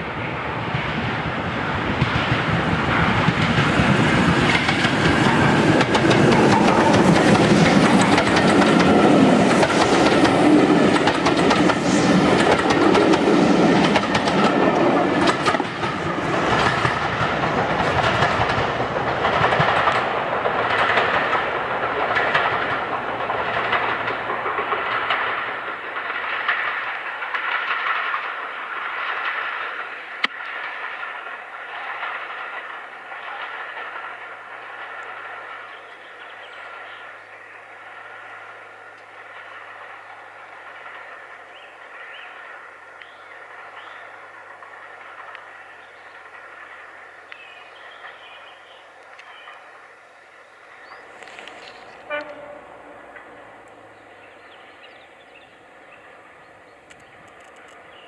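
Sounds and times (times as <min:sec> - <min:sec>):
steam train passing: 0:00.0 - 0:58.0
wheels clattering over rail joints: 0:02.0 - 0:42.3.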